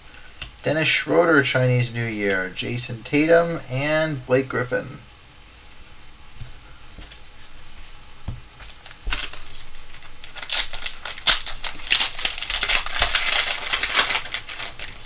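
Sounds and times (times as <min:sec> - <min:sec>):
cards being handled: 0:08.6 - 0:15.0
foil wrapper tearing and crinkling: 0:08.6 - 0:15.0.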